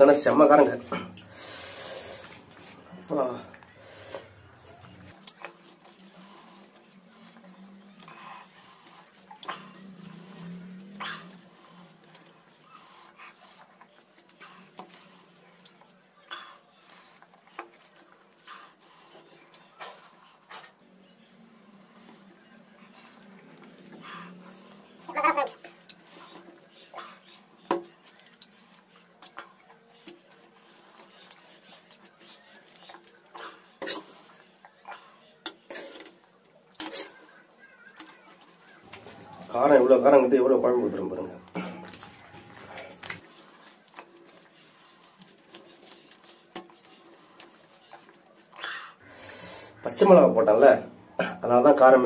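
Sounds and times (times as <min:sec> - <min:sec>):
mouth chewing: 0:01.1 - 0:21.0
short breaths: 0:01.2 - 0:02.4, 0:48.6 - 0:49.8.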